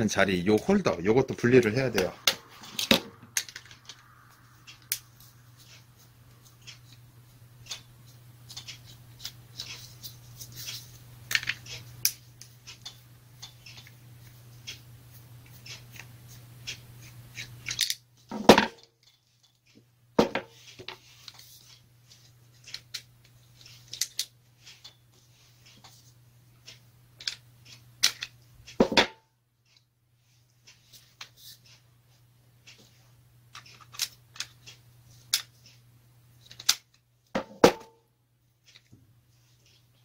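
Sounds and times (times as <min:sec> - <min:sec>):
low steady hum: 0:00.0 - 0:40.0
small parts clicking and rattling: 0:02.1 - 0:07.0, 0:07.6 - 0:14.8, 0:15.4 - 0:18.1, 0:18.8 - 0:19.8, 0:20.6 - 0:28.8, 0:33.5 - 0:35.8, 0:36.4 - 0:37.1.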